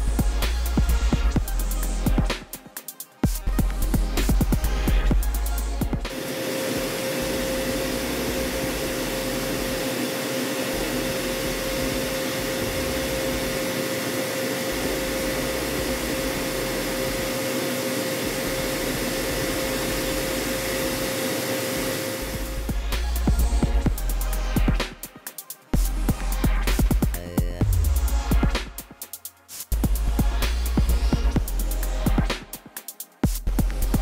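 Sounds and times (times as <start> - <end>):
milling machine whine: 5.9 - 24.8.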